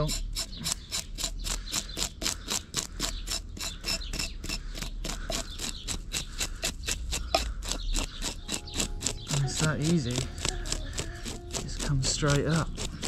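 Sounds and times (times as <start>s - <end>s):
knife scraping fish scales: 0.0s - 13.0s.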